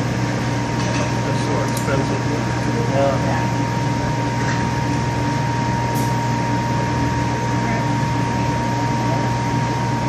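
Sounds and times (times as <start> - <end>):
furnace and blowers humming: 0.0 - 10.0.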